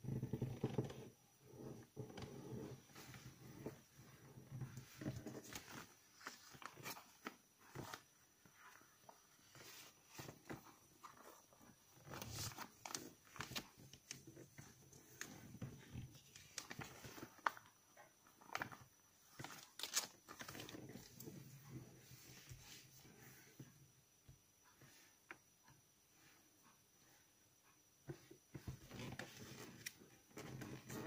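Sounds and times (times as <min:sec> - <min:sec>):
paper rustling and crinkling: 0:04.7 - 0:11.4, 0:12.0 - 0:17.7, 0:18.3 - 0:21.2
paper crackles from pressed folds: 0:16.2 - 0:17.7.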